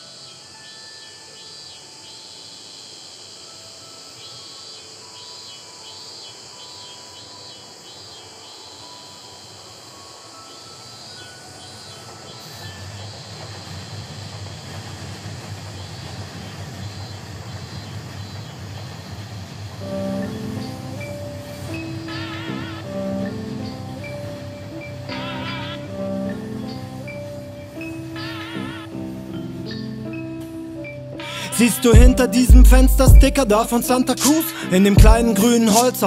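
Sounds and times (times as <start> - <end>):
insect-like chirping: 0.0 - 36.0
steady high hiss: 0.0 - 36.0
faint held notes: 19.7 - 36.0.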